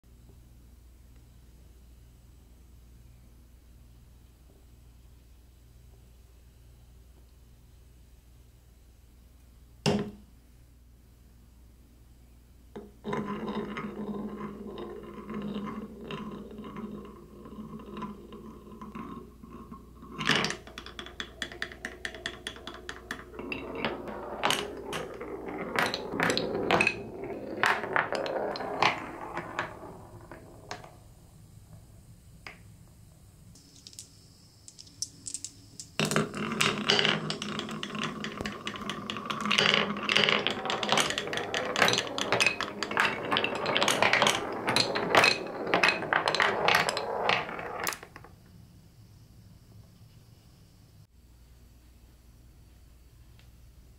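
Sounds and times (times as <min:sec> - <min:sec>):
marbles rolling in wooden run: 0:13.0 - 0:32.7, 0:33.6 - 0:48.4.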